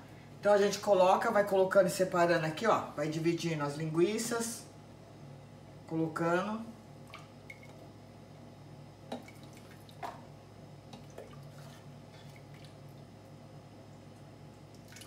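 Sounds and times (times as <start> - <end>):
steady low hum: 0.0 - 15.0
soft drips and wet plops: 7.0 - 7.8, 9.1 - 10.3, 10.9 - 15.0.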